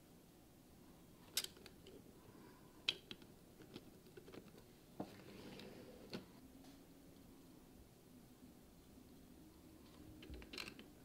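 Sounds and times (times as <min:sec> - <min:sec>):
plastic parts clicking: 0:10.2 - 0:11.0.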